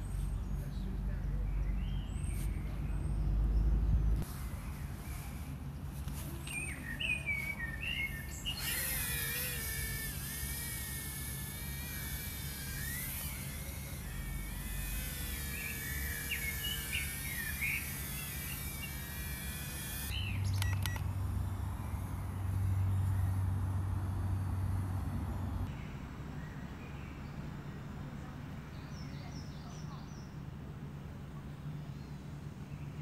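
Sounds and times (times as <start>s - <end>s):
small birds chirping: 0.0s - 24.8s, 25.5s - 30.5s
low hum: 0.0s - 28.5s
outdoor hiss: 4.2s - 28.2s.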